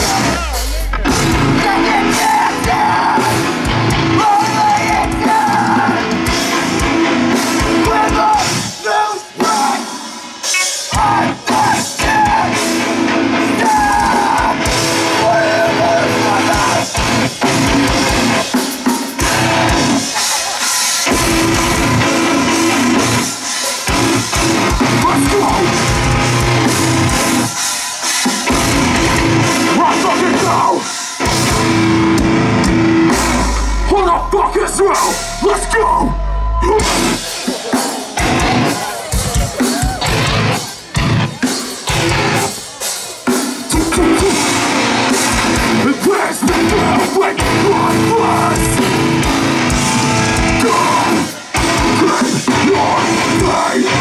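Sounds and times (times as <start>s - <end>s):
heavy rock band playing live: 0.0s - 54.0s.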